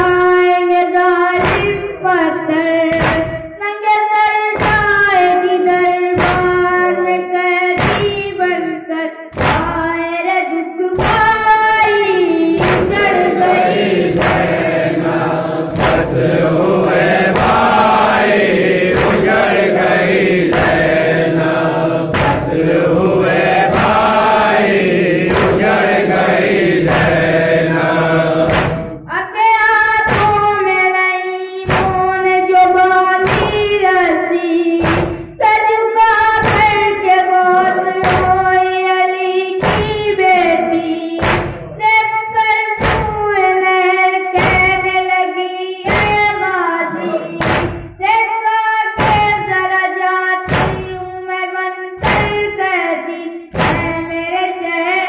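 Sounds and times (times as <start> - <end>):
young person singing: 0.0 - 16.2, 27.7 - 55.0
group chanting: 10.9 - 30.7, 31.6 - 41.9, 44.3 - 48.1
chest-beating thumps: 11.0 - 29.1, 31.6 - 32.3, 34.8 - 35.5, 36.2 - 38.7, 39.6 - 41.9, 45.9 - 48.0, 49.0 - 49.7, 50.5 - 51.2, 53.5 - 54.3.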